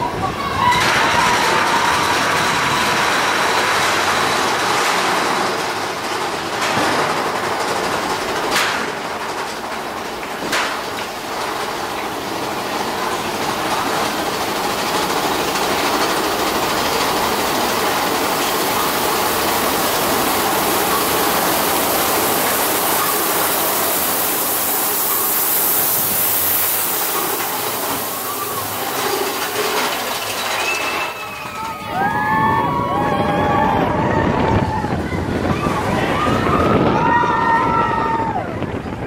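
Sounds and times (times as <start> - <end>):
roller coaster rattling: 0.0 - 39.0.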